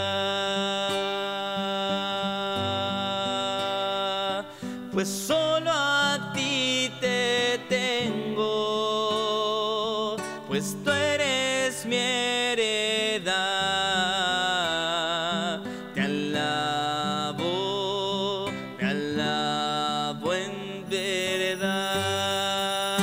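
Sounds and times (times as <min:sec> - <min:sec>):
hymn sung with vibrato: 0:00.0 - 0:23.0.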